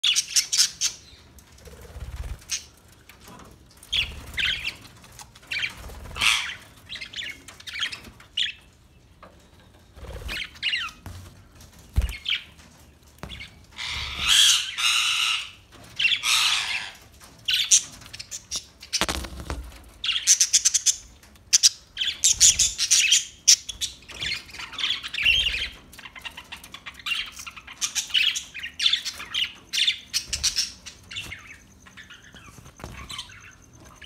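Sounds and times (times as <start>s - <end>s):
budgerigars chirping and squawking: 0.0s - 1.2s, 3.9s - 4.9s, 5.5s - 8.6s, 10.0s - 11.0s, 13.2s - 34.0s
low thumps: 19.0s - 19.9s.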